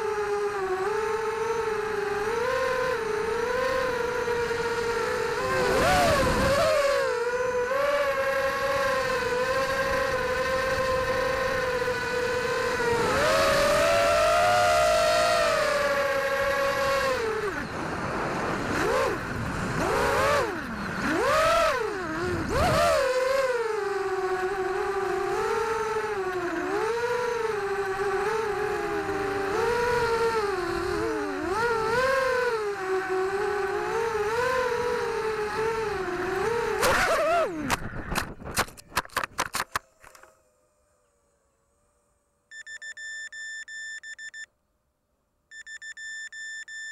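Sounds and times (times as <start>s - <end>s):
drone motors whining: 0.0s - 44.5s
drone beeping: 42.5s - 44.5s, 45.5s - 46.9s.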